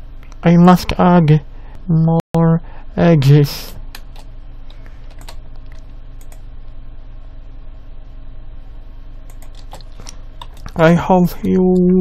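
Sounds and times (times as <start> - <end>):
steady electrical hum: 0.0 - 12.0
keyboard and mouse clicks: 3.9 - 6.4, 9.3 - 11.9.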